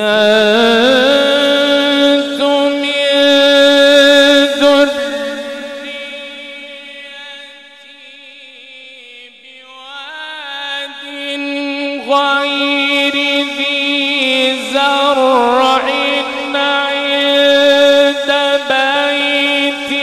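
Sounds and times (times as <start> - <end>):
man reciting melodically: 0.0 - 20.0.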